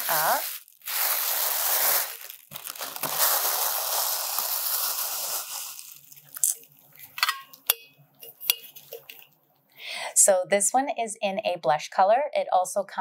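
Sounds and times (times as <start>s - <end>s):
tissue paper rustling: 0.0s - 6.6s.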